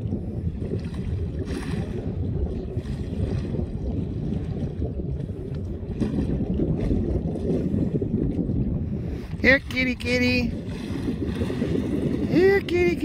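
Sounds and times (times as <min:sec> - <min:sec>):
small boat engine rumble: 0:00.0 - 0:13.0
wind buffeting microphone: 0:00.0 - 0:13.0.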